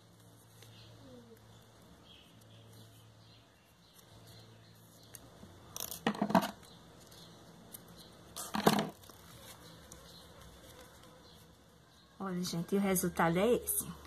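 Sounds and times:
rustling: 0.0s - 3.1s, 3.9s - 11.7s.

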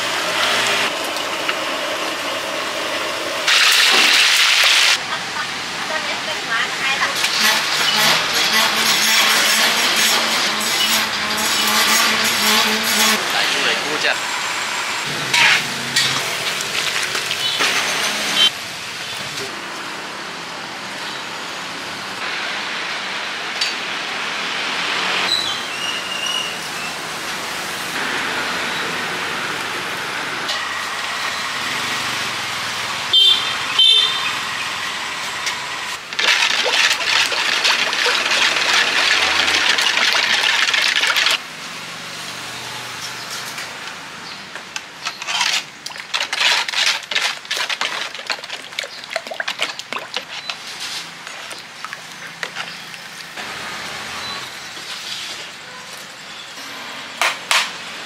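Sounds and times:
street traffic noise: 0.0s - 58.0s
cooking hiss: 0.5s - 7.5s.

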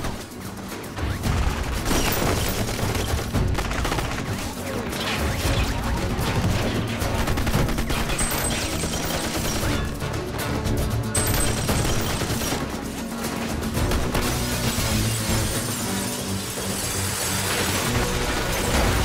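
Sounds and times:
film music score: 0.0s - 19.0s.

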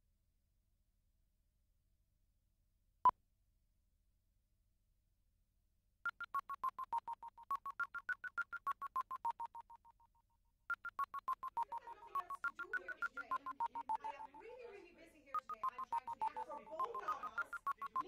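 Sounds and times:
rapid electronic beeps: 6.1s - 10.1s, 10.7s - 14.5s, 15.4s - 18.0s.

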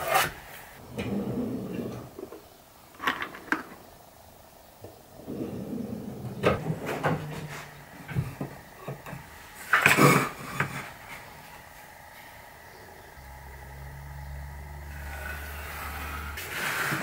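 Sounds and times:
ruler scraping across paper: 15.0s - 17.0s.

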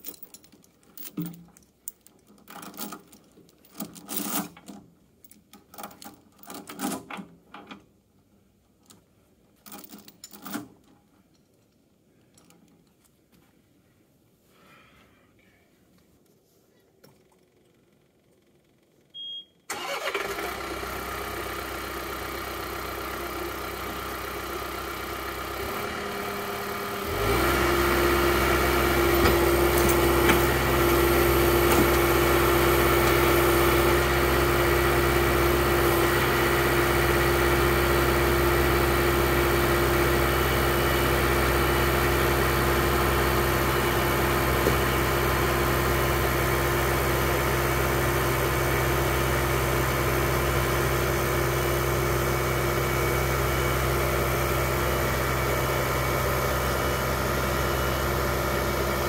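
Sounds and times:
tractor diesel engine starting: 19.7s - 59.0s
tractor engine idling: 19.7s - 59.0s
tractor engine revving: 19.7s - 59.0s.

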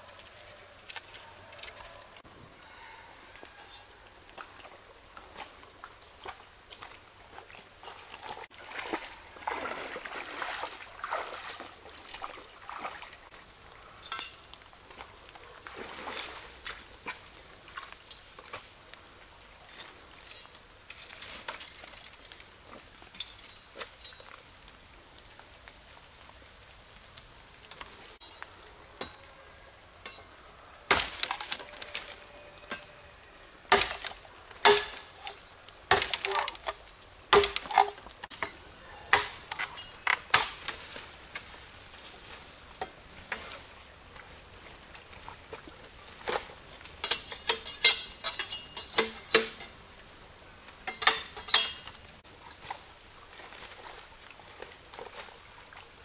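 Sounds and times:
rustling in dry leaves: 0.0s - 51.1s, 51.8s - 56.0s
bamboo knocking and cracking: 30.9s - 32.8s, 33.7s - 41.6s.

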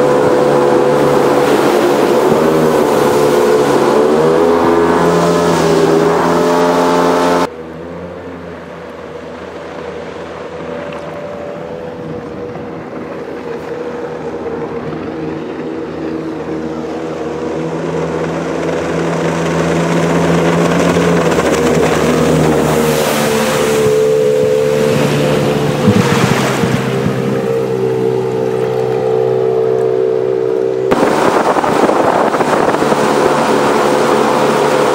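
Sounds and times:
boat engine running at speed: 0.0s - 34.9s
hiss of boat spray and wake: 21.6s - 27.6s, 30.9s - 34.9s.

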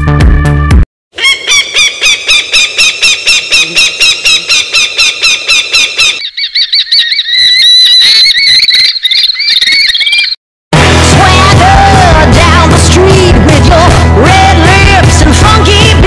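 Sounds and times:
falcon calling: 1.2s - 10.4s.

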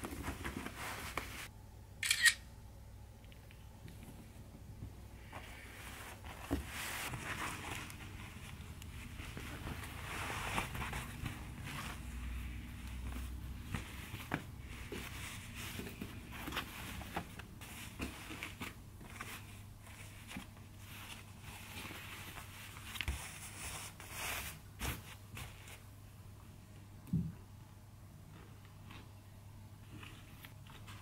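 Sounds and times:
fabric rustling and swishing: 0.0s - 1.5s, 5.2s - 25.9s
low steady hum: 0.0s - 23.3s.

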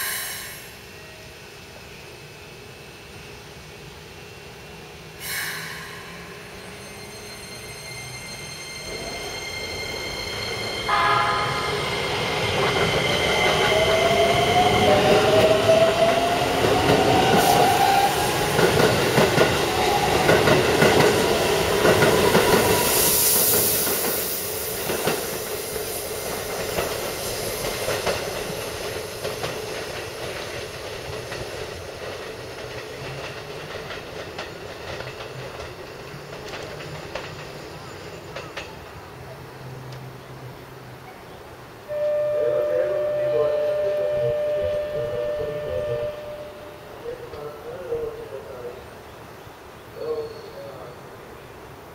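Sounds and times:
wheels clattering on rails: 26.3s - 39.0s
short tone: 41.9s - 46.9s.

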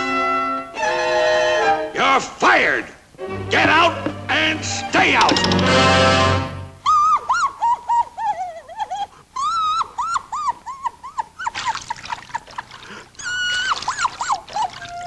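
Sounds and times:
cartoon sobbing wails: 6.8s - 11.6s, 13.2s - 15.0s.

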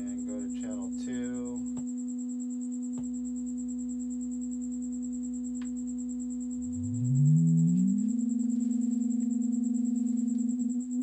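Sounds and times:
faint high-pitched whine: 0.0s - 11.0s
low sine tone: 0.0s - 11.0s.

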